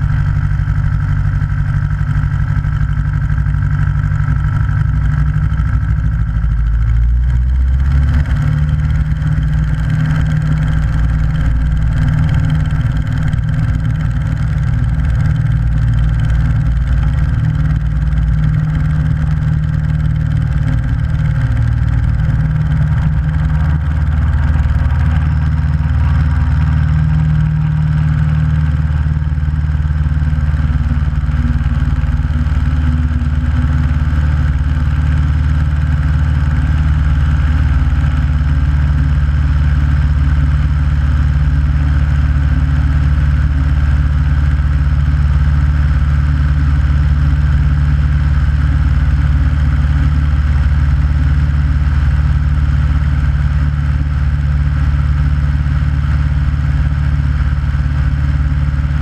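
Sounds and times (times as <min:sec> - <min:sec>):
light aircraft engine droning: 0:00.0 - 0:59.0.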